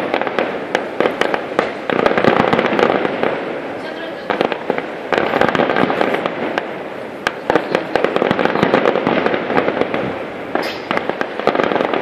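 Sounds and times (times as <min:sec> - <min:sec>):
firework hiss: 0:00.0 - 0:12.0
firework shell bursts: 0:00.0 - 0:12.0
fireworks crackling: 0:00.0 - 0:12.0.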